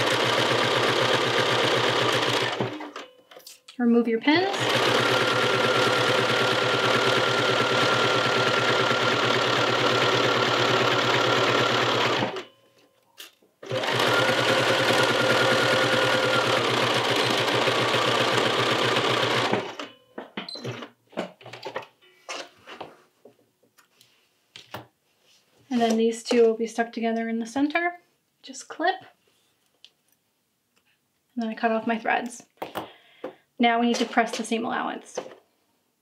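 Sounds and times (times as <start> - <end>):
sewing machine stitching: 0.0 - 3.1, 4.3 - 12.5, 13.6 - 20.0.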